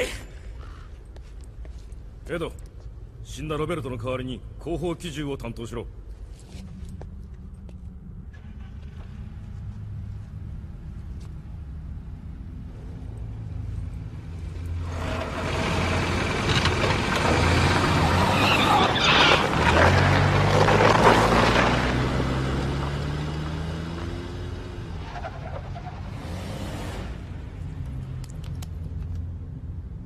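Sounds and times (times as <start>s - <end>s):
road noise rushing: 8.3s - 29.2s.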